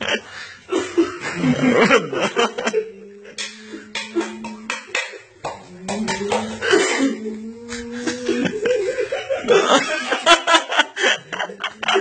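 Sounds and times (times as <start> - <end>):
people laughing: 0.0 - 12.0.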